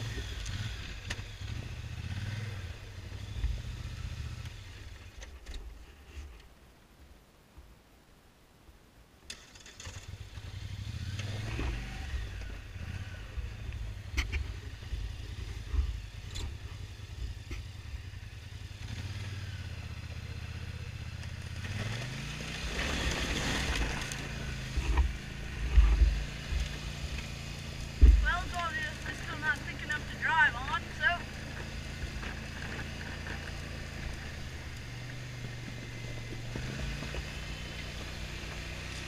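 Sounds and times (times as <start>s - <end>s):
quad bike engine idling and revving: 0.0s - 5.5s, 9.3s - 39.0s
knocks and clatter on rough trail: 0.0s - 6.6s, 9.3s - 39.0s.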